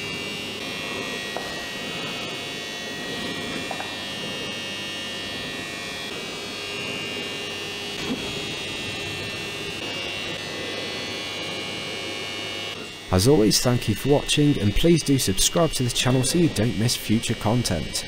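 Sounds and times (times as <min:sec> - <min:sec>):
electrical buzz: 0:00.0 - 0:18.0.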